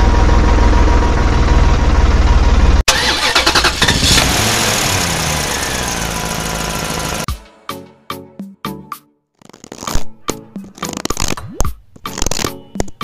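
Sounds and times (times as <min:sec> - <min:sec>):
diesel tractor engine chugging: 0:00.0 - 0:07.3
loud engine: 0:00.0 - 0:07.3.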